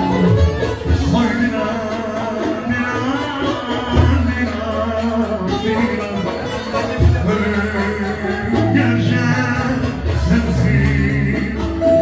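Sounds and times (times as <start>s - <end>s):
live band music through speakers: 0.0s - 12.0s
person singing: 0.0s - 12.0s
sustained bass line: 0.0s - 12.0s.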